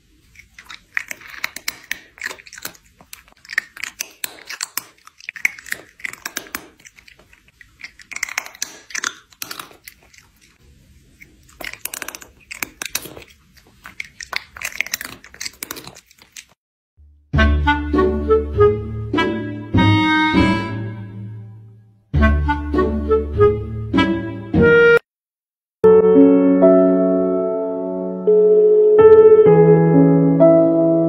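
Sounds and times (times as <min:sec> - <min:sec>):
cat chewing: 0:00.0 - 0:16.6.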